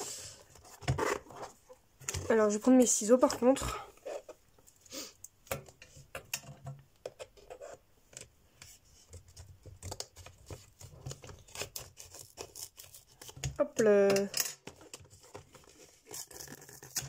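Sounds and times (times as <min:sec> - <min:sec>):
plastic box being handled: 0:00.4 - 0:04.4.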